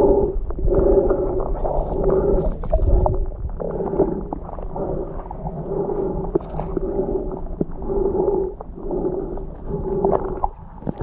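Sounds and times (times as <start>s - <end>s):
muffled underwater rumble: 0.0s - 11.0s.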